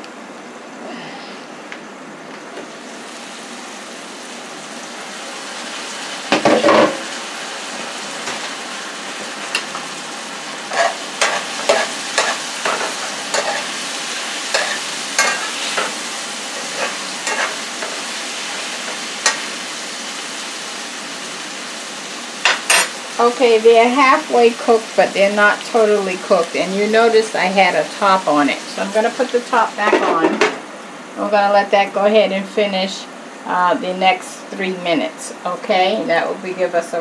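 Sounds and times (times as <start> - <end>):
vegetables sizzling in a skillet: 2.5 - 37.0
spoon scraping a pan: 10.7 - 13.8, 14.5 - 16.0, 16.6 - 19.5.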